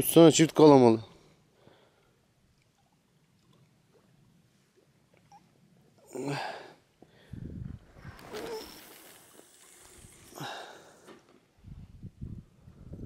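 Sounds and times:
person breathing: 1.2 - 2.2, 6.2 - 7.6, 8.3 - 11.3.

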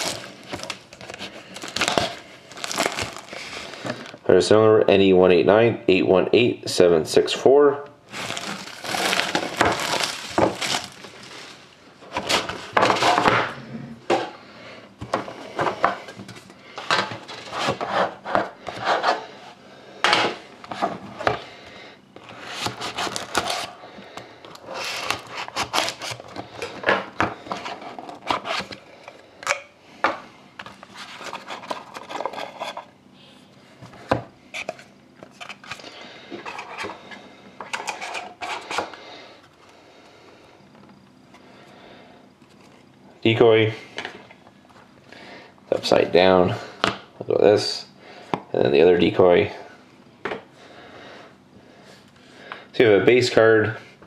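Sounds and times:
plastic wrap and cardboard rustling: 0.0 - 4.2, 8.1 - 13.3, 22.4 - 23.8, 24.6 - 28.9
knife slicing box seal: 24.8 - 26.2.

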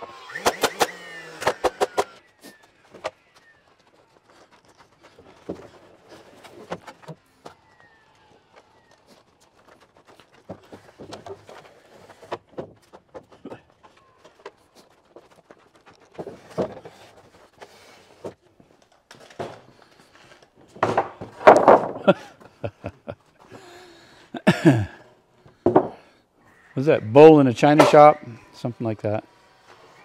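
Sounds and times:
boards clattering: 5.0 - 7.6, 10.0 - 23.7, 24.7 - 26.2, 27.6 - 28.3
wood knocking on wood: 20.7 - 22.2, 25.6 - 26.0.

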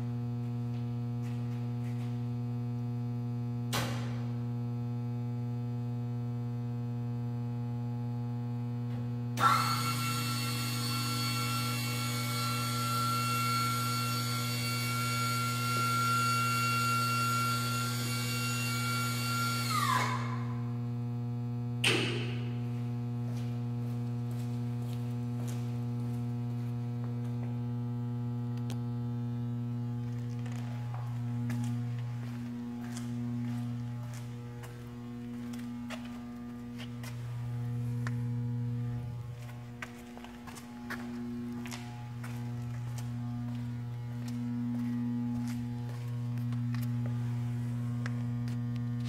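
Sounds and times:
electric lift motor whine: 0.0 - 49.0
electrical hum: 0.0 - 49.0
motor start thunk: 21.8 - 22.6.

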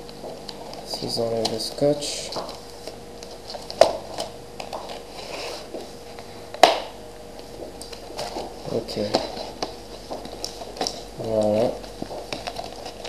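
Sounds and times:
cardboard rustling: 0.0 - 6.4, 7.4 - 13.0
tape snapping: 6.5 - 7.0.

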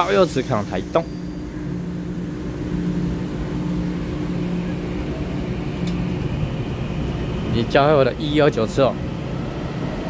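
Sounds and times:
electric train traction hum: 0.0 - 10.0
train cars rumbling: 0.0 - 10.0.

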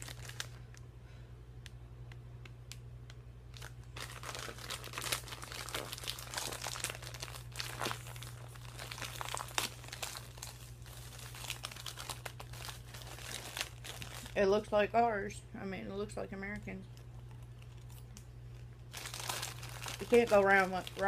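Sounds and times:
plastic snack bag crinkling: 0.0 - 0.8, 3.5 - 14.7, 16.8 - 21.0.

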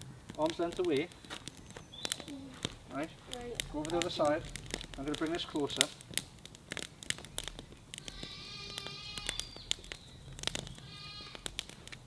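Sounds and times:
campfire crackling and snapping: 0.0 - 12.0
drawn-out steady calls: 6.9 - 11.9.

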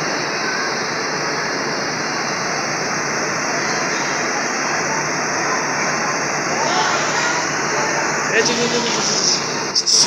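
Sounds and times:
loud rushing machinery noise: 0.0 - 10.0.

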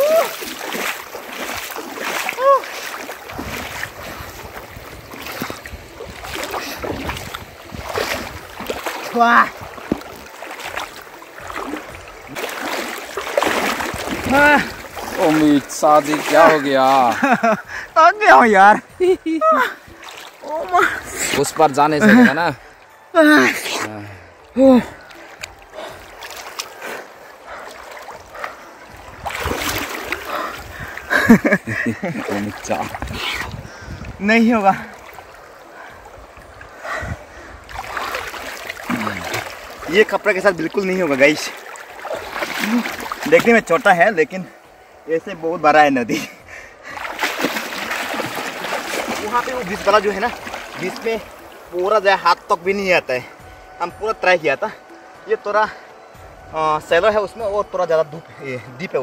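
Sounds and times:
small splashes: 0.0 - 17.4, 19.5 - 23.6, 24.4 - 36.8, 37.5 - 45.0, 46.8 - 51.9
river water rushing: 0.0 - 23.5, 24.1 - 57.0
wind rumbling on microphone: 3.2 - 8.8, 32.8 - 34.3, 35.2 - 38.4.

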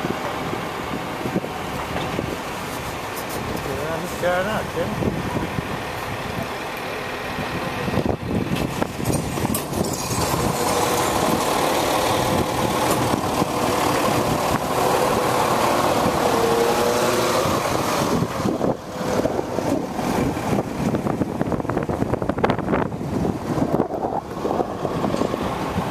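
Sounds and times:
tyre and road noise: 0.0 - 25.9
car engine running: 0.4 - 25.9.

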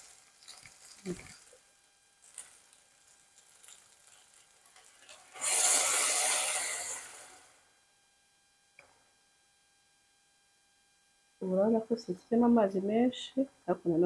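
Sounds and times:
water pouring into a pot: 0.0 - 7.5.

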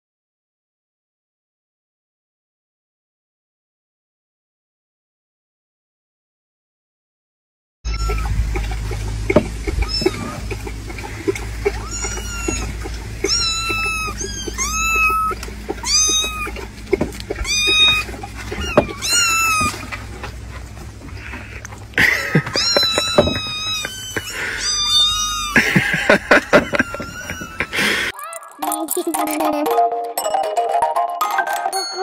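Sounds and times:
kittens mewing: 7.9 - 28.3.

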